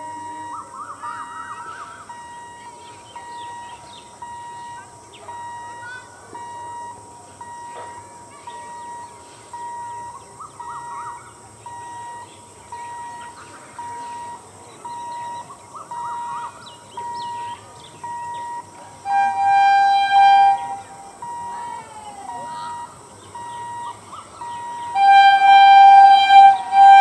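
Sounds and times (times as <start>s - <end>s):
electronic beeps: 0.0s - 18.8s, 19.4s - 27.0s
birds chirping: 0.0s - 27.0s
train horn blasts: 19.0s - 21.5s, 24.4s - 27.0s.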